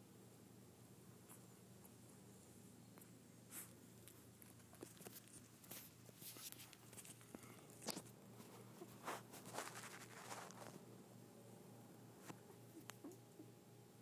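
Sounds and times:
low steady hum: 0.0s - 14.0s
faint fabric rustles: 1.2s - 10.9s.

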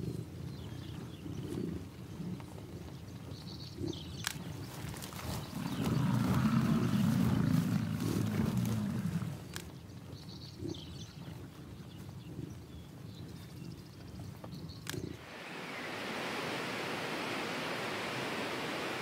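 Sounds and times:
bison bellowing: 5.4s - 9.6s.

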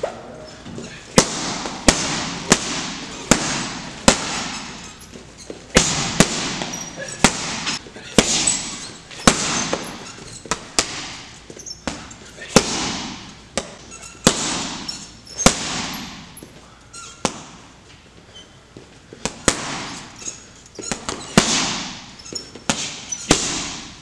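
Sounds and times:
boxing gloves striking heavy bag: 1.1s - 4.9s, 5.7s - 16.4s, 19.2s - 20.1s, 20.8s - 24.0s.

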